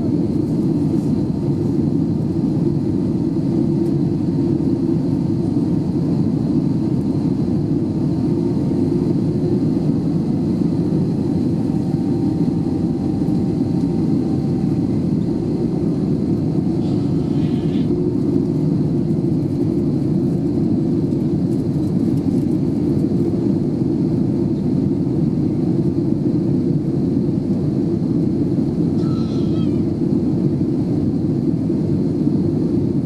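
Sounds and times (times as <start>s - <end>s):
airplane cabin engine rushing: 0.0s - 33.0s.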